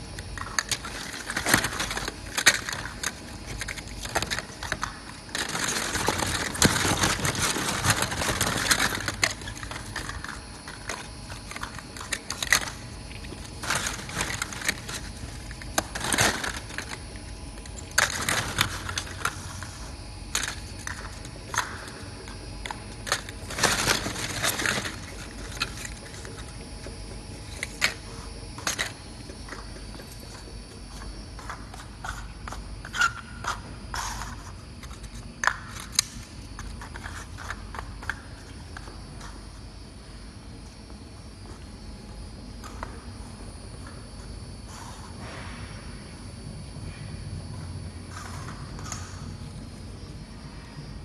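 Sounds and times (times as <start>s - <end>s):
plastic lids clicking and clattering: 0.2s - 19.4s, 20.3s - 26.6s.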